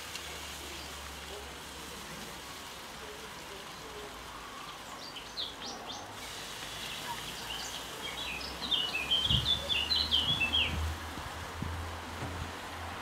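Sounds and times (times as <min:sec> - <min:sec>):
songbird chirping: 0:03.0 - 0:11.0.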